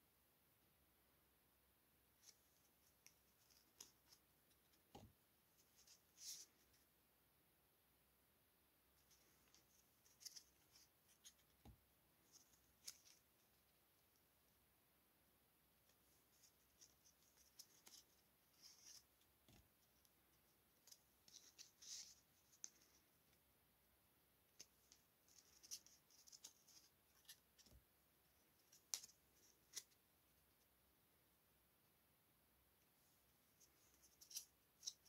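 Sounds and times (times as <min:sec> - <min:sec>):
paper cards rustling and clicking: 0:02.2 - 0:06.8, 0:09.0 - 0:13.6, 0:16.3 - 0:20.2, 0:20.8 - 0:23.0, 0:24.5 - 0:27.8, 0:28.6 - 0:30.0, 0:33.7 - 0:35.0.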